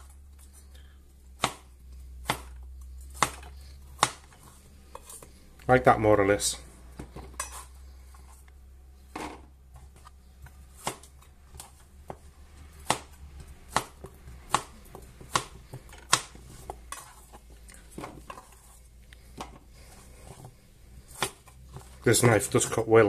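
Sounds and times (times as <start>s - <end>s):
knife chopping on cutting board: 1.4s - 5.2s, 10.7s - 17.2s, 21.1s - 22.0s.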